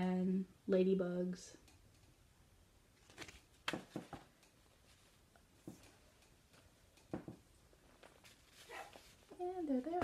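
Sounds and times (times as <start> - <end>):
soft knocks and rustles of paper: 3.0 - 4.3.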